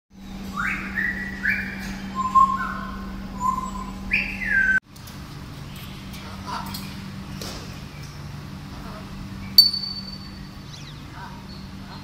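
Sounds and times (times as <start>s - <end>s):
steady low hum: 0.2s - 12.0s
parrot whistling: 0.6s - 4.8s.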